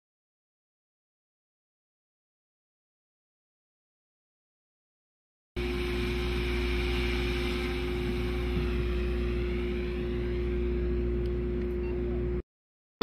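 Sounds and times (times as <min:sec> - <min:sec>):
drone engine and propeller hum: 0:05.6 - 0:12.4.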